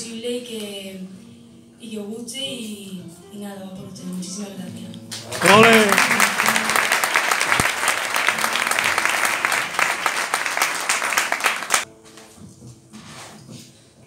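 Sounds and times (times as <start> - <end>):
audience applauding: 5.1 - 11.9.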